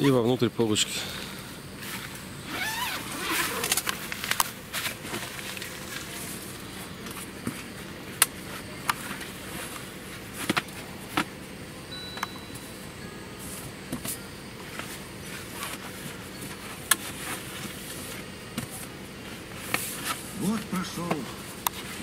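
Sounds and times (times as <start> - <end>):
rustling and squeaking: 2.5 - 5.9.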